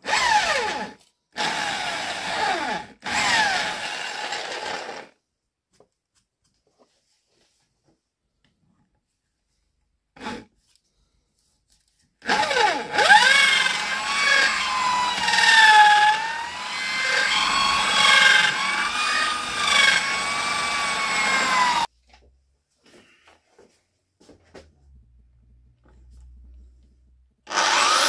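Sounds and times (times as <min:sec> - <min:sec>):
electric drill boring into antler: 0:00.0 - 0:05.1, 0:12.3 - 0:21.9, 0:27.5 - 0:28.0.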